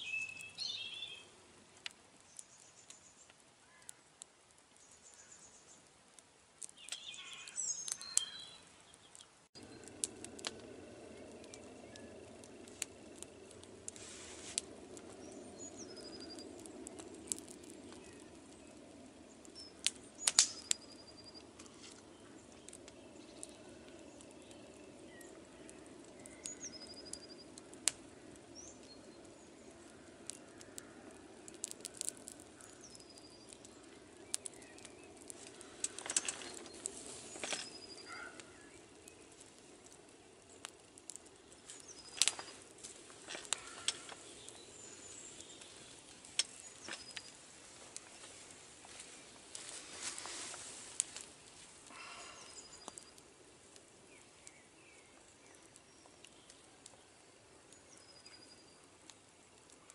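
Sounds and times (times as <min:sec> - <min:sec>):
wood fire crackling: 0:00.0 - 0:59.9.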